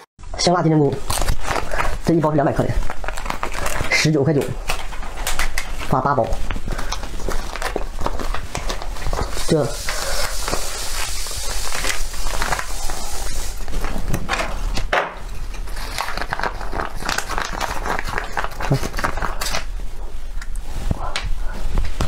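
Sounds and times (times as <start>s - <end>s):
plastic pouch crinkling: 0.9s - 14.2s, 15.7s - 19.7s.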